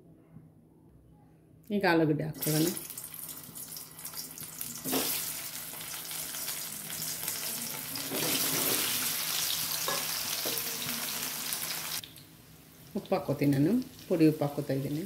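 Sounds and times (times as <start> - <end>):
potatoes sizzling in hot oil: 2.4 - 12.2.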